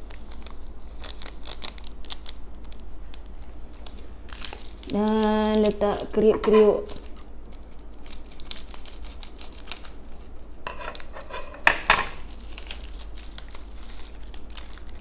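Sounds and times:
plastic sachet crinkling: 0:00.0 - 0:11.5, 0:12.2 - 0:15.0
cracker bits pattering on plate: 0:10.7 - 0:15.0.

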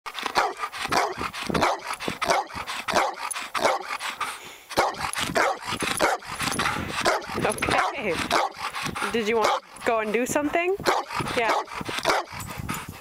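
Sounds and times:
dog barking: 0:00.4 - 0:03.9, 0:04.8 - 0:06.2, 0:07.0 - 0:08.6, 0:09.4 - 0:09.6, 0:10.8 - 0:12.3.

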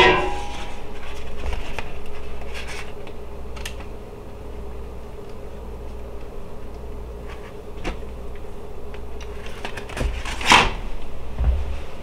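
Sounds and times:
soft knocks: 0:11.4 - 0:11.9.

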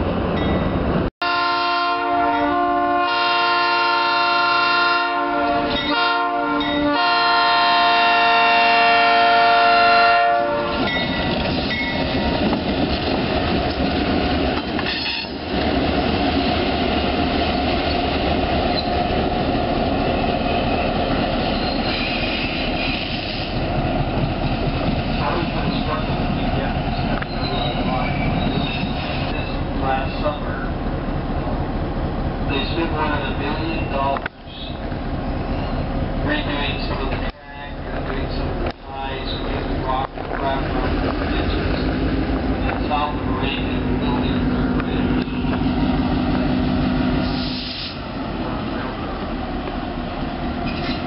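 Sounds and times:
locomotive air horn blasts: 0:01.2 - 0:10.9.

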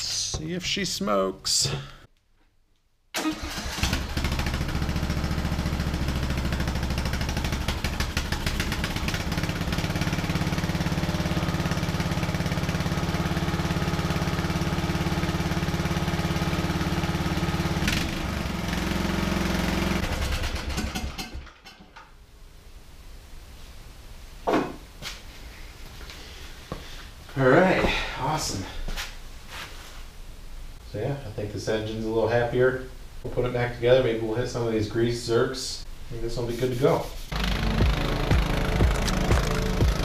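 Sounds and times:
lawn tractor engine starting: 0:03.2 - 0:21.7, 0:37.3 - 0:40.0.

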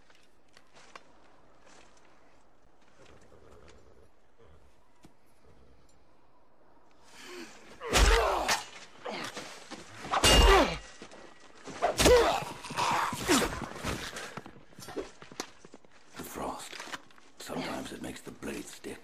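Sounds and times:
heavy sword blows: 0:10.0 - 0:11.1.

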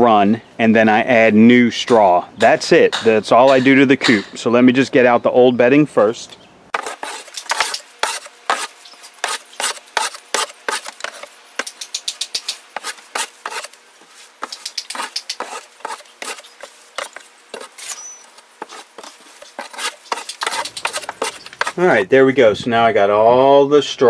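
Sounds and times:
tool scraping straw across wooden floor: 0:06.7 - 0:22.0.

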